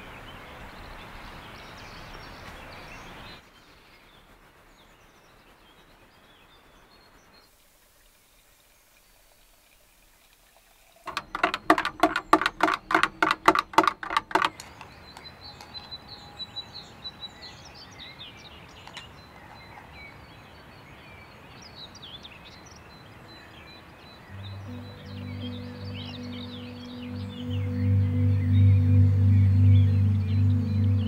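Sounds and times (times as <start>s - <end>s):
steady background hiss: 0.0s - 11.0s, 16.1s - 31.0s
birds chirping: 11.1s - 31.0s.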